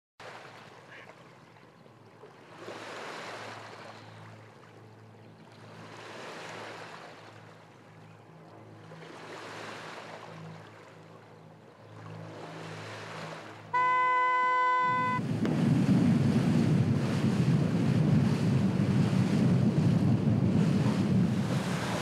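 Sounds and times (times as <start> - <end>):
waves washing in: 0.2 - 22.0
low bass notes: 13.7 - 21.6.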